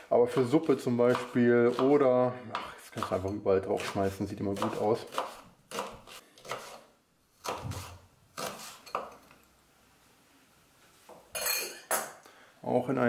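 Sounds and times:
knife chopping on wooden board: 0:01.1 - 0:03.2, 0:03.8 - 0:06.8, 0:07.4 - 0:09.1.

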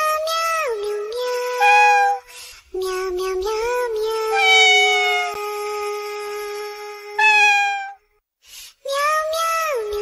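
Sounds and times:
synthetic voice singing in meows: 0:00.3 - 0:02.2, 0:04.0 - 0:05.6, 0:07.2 - 0:08.0.

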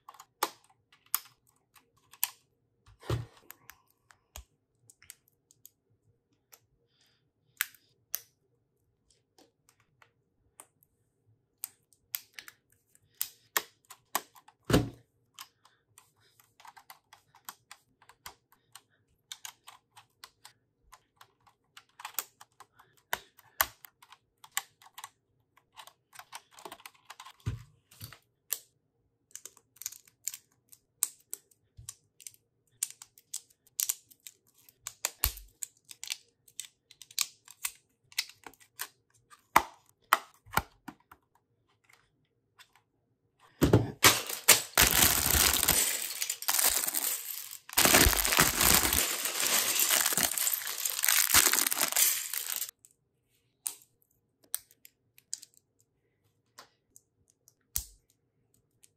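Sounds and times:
plastic bricks clicking and rattling: 0:44.0 - 0:52.7.

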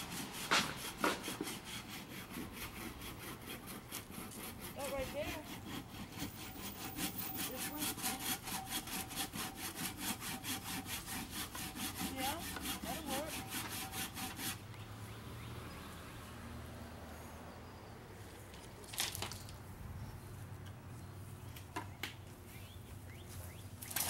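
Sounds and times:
hand saw cutting wood: 0:00.0 - 0:14.6.

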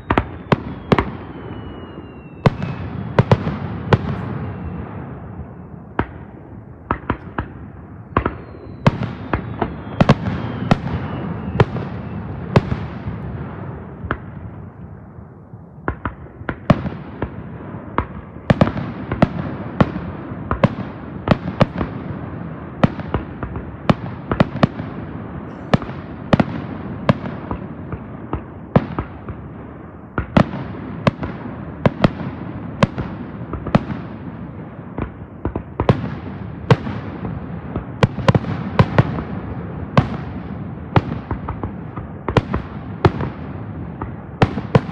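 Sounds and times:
falling whistle: 0:00.0 - 0:02.8, 0:08.3 - 0:12.4
fireworks bursting with echo: 0:00.0 - 0:44.9.

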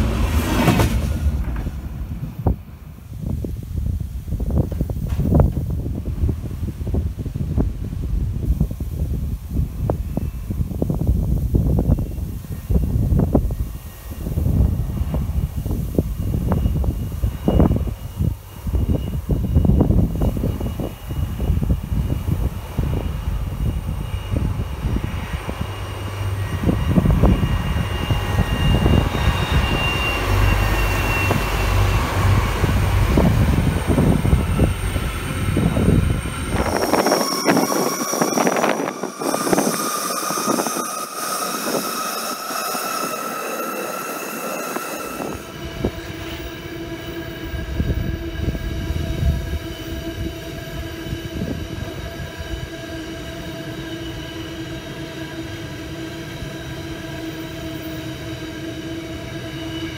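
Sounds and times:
train wheels squealing: 0:09.6 - 0:59.9
steady ringing tones: 0:34.3 - 0:50.3.

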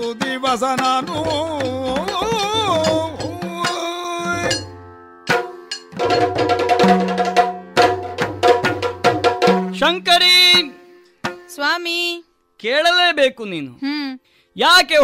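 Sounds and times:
drum strokes: 0:00.0 - 0:11.7.

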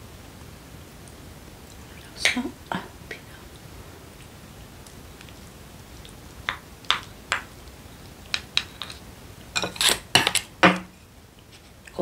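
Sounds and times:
utensils clattering: 0:09.6 - 0:10.8.

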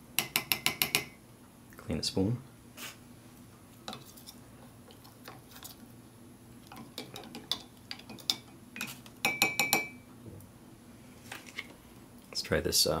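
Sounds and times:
spoon tapping mug: 0:00.2 - 0:01.2, 0:07.0 - 0:10.0
spoon stirring in ceramic mug: 0:06.7 - 0:10.0.

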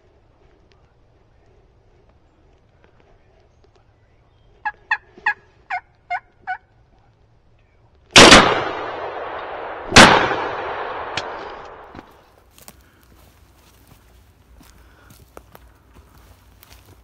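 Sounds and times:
turkey yelping: 0:04.6 - 0:06.7
shotgun blasts echoing: 0:08.1 - 0:12.0.

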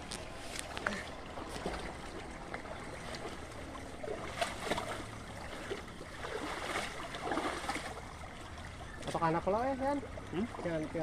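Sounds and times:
small splashes and knocks: 0:00.0 - 0:11.0
water trickling: 0:00.0 - 0:11.0.

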